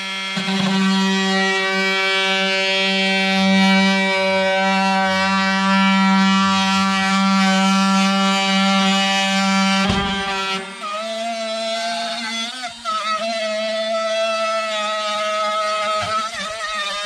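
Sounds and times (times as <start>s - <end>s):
drill whining through wood: 0.0s - 17.0s
rough clatter in the cut: 9.8s - 11.4s.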